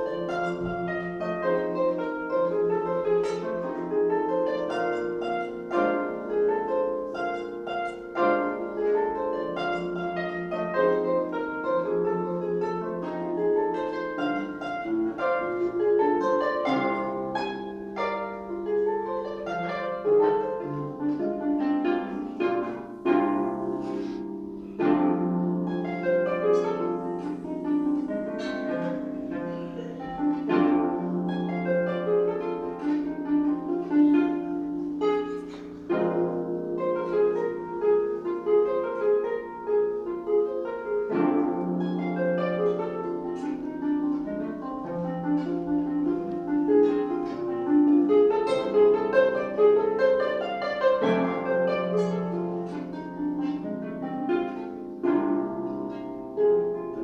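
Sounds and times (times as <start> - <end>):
solo harp playing blues: 0.0 - 57.0.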